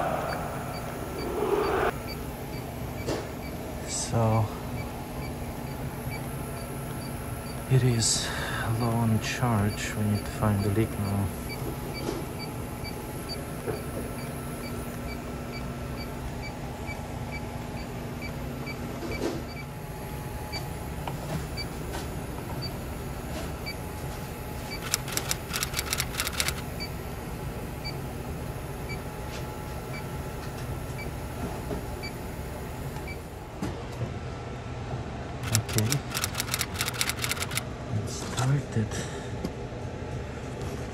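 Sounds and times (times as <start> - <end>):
leak detector ticking: 0.0 - 8.1, 8.7 - 18.8, 24.7 - 27.0, 35.4 - 37.6
machine hum: 0.0 - 37.9
rapid clicking: 24.8 - 26.6, 35.4 - 37.6.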